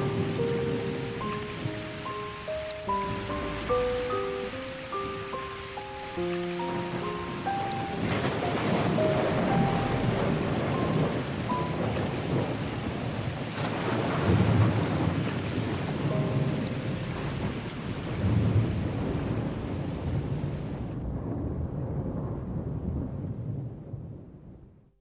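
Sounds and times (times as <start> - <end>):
heavy rain: 0.0 - 24.2
rolls of thunder: 6.6 - 24.8.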